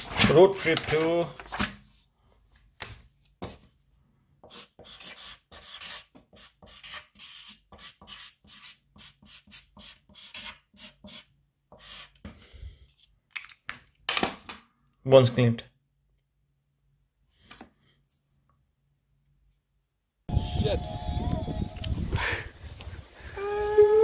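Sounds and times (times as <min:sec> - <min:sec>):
felt-tip marker scratching on paper: 0:04.5 - 0:12.2.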